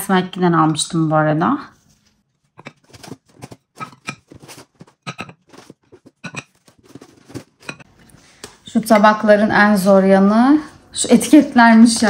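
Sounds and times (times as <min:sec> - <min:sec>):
ceramic plates clicking and knocking: 0:02.6 - 0:06.6, 0:07.6 - 0:07.9.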